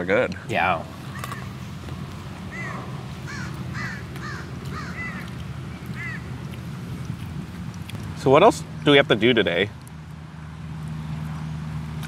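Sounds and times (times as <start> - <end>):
steady low rumble: 0.3 - 11.4
bird calling: 0.9 - 1.8, 2.4 - 6.7.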